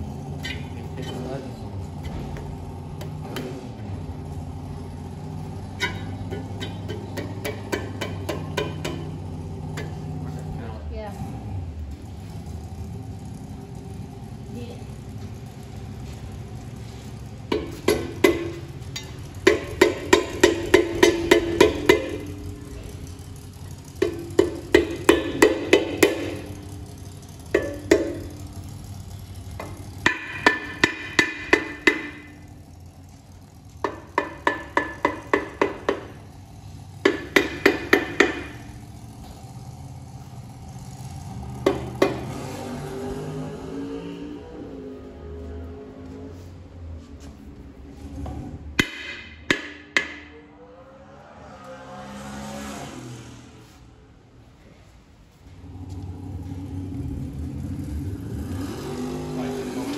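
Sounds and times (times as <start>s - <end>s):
hammer tapping on metal: 5.7s - 10.2s, 17.5s - 22.4s, 23.9s - 26.7s, 27.5s - 28.4s, 29.6s - 32.5s, 33.8s - 36.3s, 37.0s - 38.7s, 41.6s - 42.3s, 48.8s - 50.4s.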